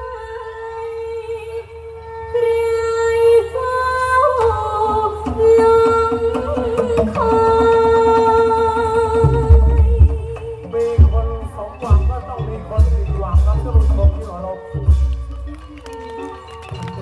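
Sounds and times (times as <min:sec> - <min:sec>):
woman singing into microphone: 0:00.0 - 0:11.3
amplified band with steady beat: 0:04.4 - 0:17.0.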